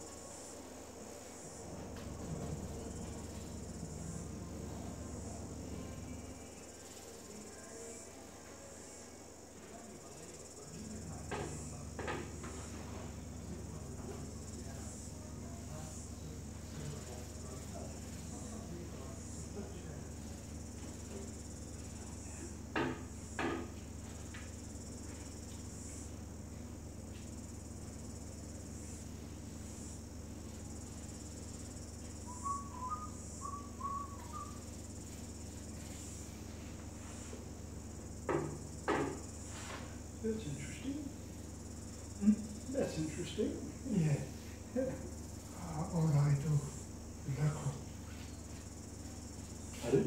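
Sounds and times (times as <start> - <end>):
insect trilling: 27.4 - 36.4, 40.2 - 50.0.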